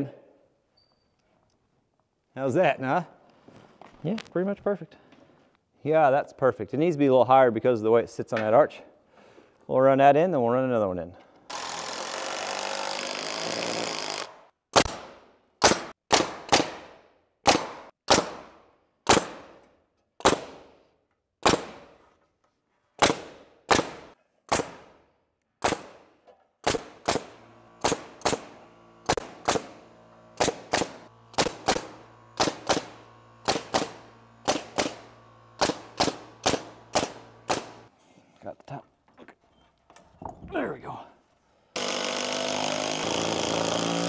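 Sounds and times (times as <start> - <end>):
impact driver driving screw: 26.7 - 37.9, 41.8 - 44.0
low hum: 27.0 - 37.9.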